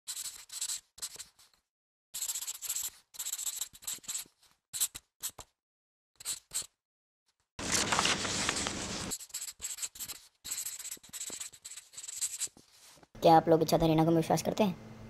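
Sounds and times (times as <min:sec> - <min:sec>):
pencil scratching on paper: 0:00.1 - 0:05.6, 0:06.2 - 0:06.8, 0:07.7 - 0:13.1.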